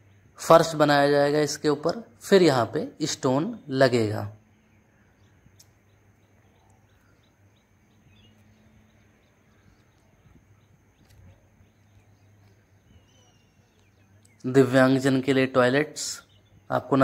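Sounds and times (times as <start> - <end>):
faint bird chirps: 3.6 - 17.0.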